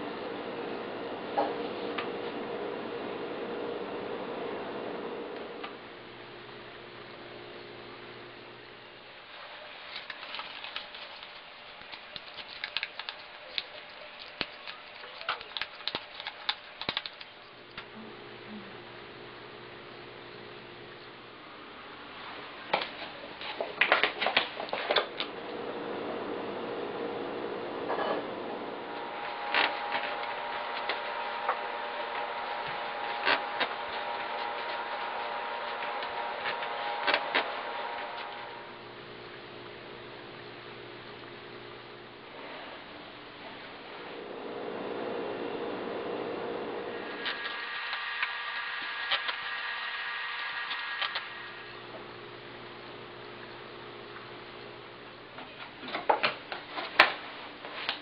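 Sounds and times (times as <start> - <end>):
faint hum: 0.0 - 58.0
banknote crinkling: 9.8 - 17.6.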